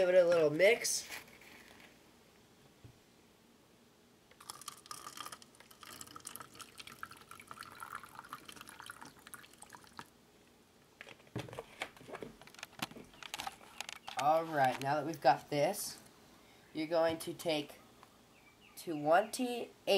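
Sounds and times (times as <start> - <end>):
liquid trickling into cup: 4.4 - 10.1.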